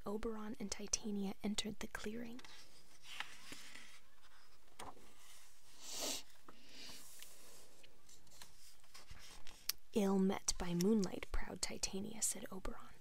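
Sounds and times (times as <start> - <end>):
book page turning: 2.4 - 5.5, 6.9 - 9.8.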